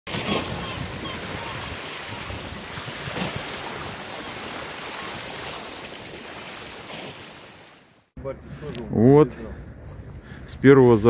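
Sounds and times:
sea waves washing: 0.1s - 8.1s.

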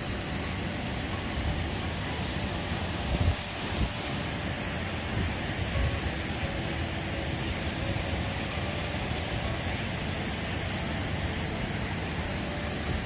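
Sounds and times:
river water rushing over rocks: 0.0s - 13.0s
wind on microphone: 2.9s - 4.0s.

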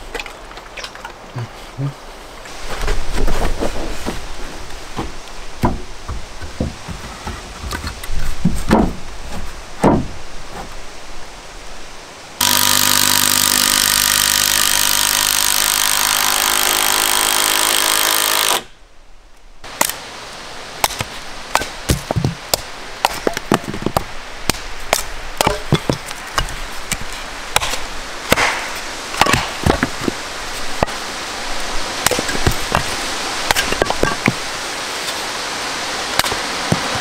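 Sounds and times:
hatchet splitting kindling: 12.4s - 18.7s
loud mechanical buzz with hiss: 12.4s - 18.7s.

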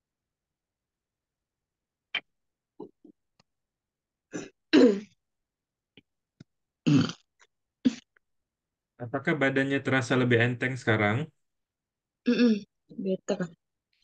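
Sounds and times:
person clearing throat: 4.3s - 5.1s, 6.8s - 7.3s, 7.9s - 8.1s.

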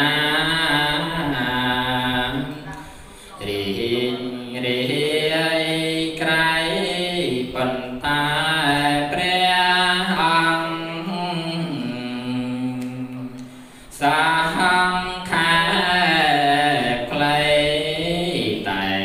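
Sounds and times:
voices chanting: 0.0s - 13.3s.

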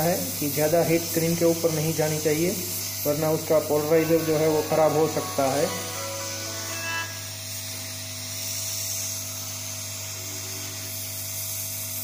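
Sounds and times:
thin steady whine: 2.9s - 8.3s.

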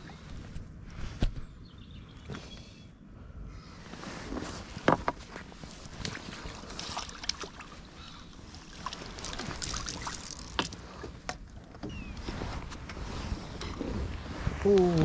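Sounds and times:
water splashing and dripping: 6.0s - 11.2s.

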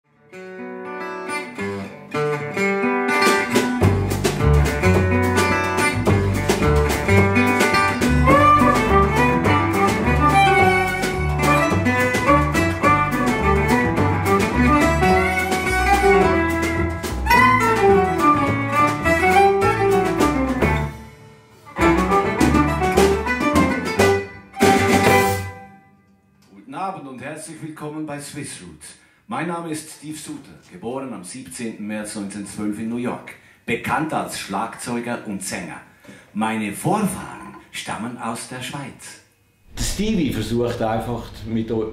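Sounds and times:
acoustic guitar picking: 0.3s - 25.8s
strummed rhythm: 0.3s - 26.4s
double bass notes: 3.8s - 25.8s
violin: 6.0s - 21.0s, 21.7s - 25.9s.

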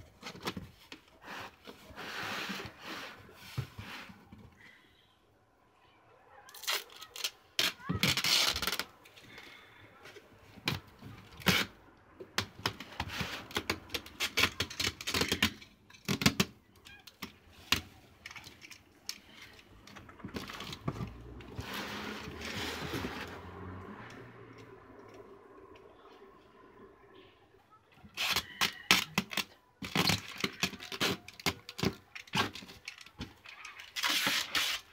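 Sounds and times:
packing tape pulled off roll: 6.5s - 8.9s, 28.1s - 34.9s.

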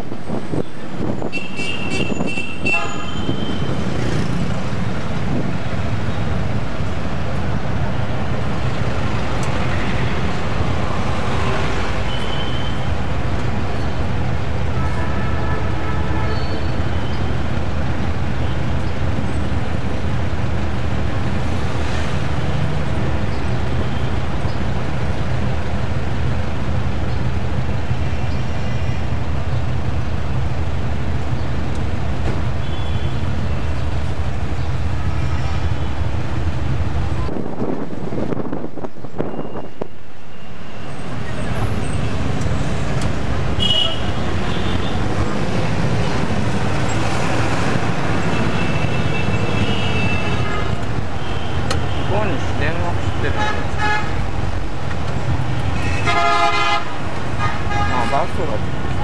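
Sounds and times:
engine and road hum: 0.0s - 59.0s
vehicle horns tooting: 1.2s - 3.8s, 12.0s - 12.9s, 14.8s - 17.2s, 32.6s - 33.2s, 43.6s - 45.0s, 48.3s - 52.5s, 53.1s - 54.2s, 55.7s - 58.4s.

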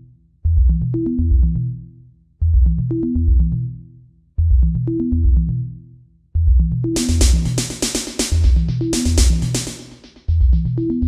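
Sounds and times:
electronic bass and drum loop: 0.5s - 1.7s, 2.4s - 3.6s, 6.4s - 11.0s.

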